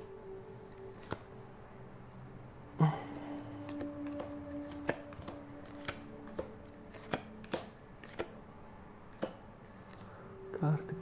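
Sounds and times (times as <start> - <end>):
cards sliding over cards: 3.4 - 8.4
cards snapping clicks: 3.6 - 8.4, 9.1 - 10.0.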